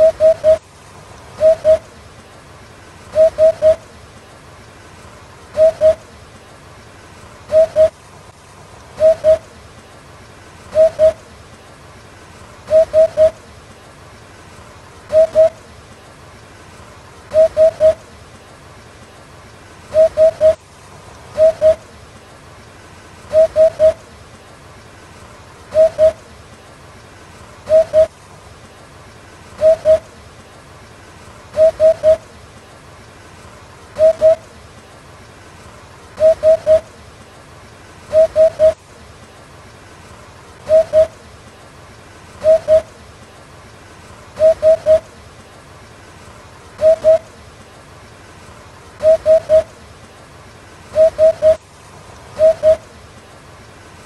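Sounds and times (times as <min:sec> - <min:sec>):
hoopoe hooting call: 0:00.0 - 0:00.6, 0:01.3 - 0:01.9, 0:03.1 - 0:03.8, 0:05.5 - 0:06.0, 0:07.5 - 0:08.0, 0:09.0 - 0:09.6, 0:10.7 - 0:11.2, 0:12.7 - 0:13.4, 0:15.1 - 0:15.6, 0:17.3 - 0:18.0, 0:19.9 - 0:20.6, 0:21.3 - 0:21.9, 0:23.3 - 0:24.1, 0:25.7 - 0:26.3, 0:27.7 - 0:28.2, 0:29.6 - 0:30.1, 0:31.5 - 0:32.3, 0:34.0 - 0:34.6, 0:36.2 - 0:37.0, 0:38.1 - 0:38.8, 0:40.6 - 0:41.2, 0:42.4 - 0:43.0, 0:44.4 - 0:45.1, 0:46.8 - 0:47.4, 0:49.0 - 0:49.8, 0:50.9 - 0:51.6, 0:52.3 - 0:52.9.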